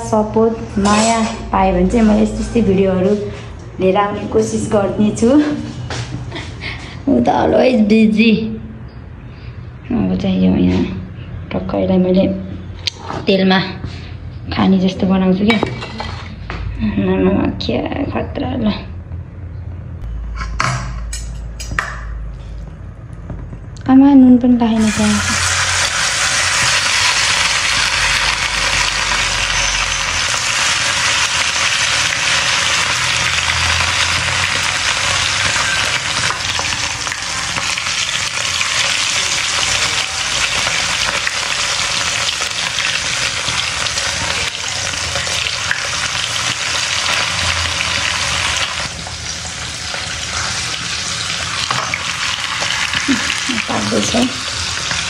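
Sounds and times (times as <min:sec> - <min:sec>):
meat sizzling in oil: 0:24.8 - 0:55.0.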